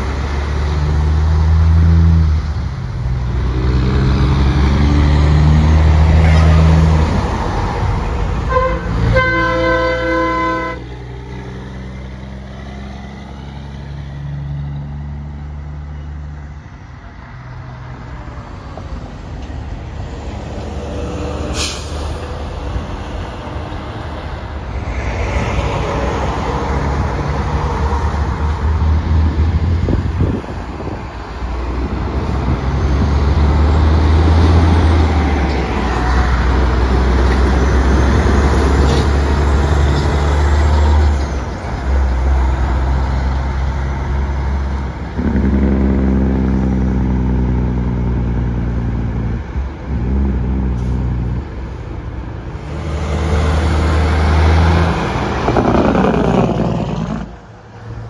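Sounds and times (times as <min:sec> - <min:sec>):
diesel trucks passing: 0:00.0 - 0:58.0
truck horn blast: 0:08.4 - 0:10.9.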